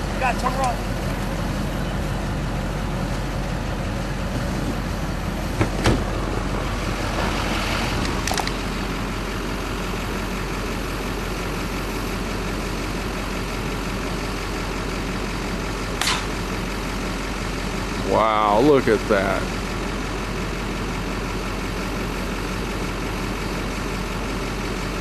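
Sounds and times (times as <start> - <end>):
vehicle engine running: 0.0 - 25.0
sharp knocks: 16.0 - 16.3.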